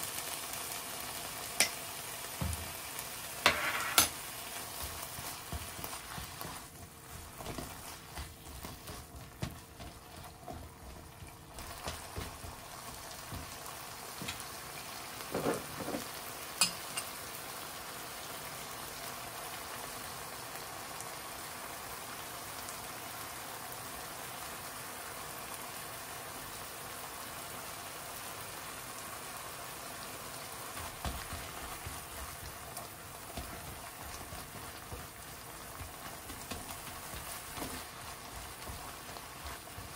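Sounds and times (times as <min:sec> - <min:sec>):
meat sizzling in oil: 0:00.0 - 0:39.9
spatula scraping pan: 0:03.4 - 0:13.6.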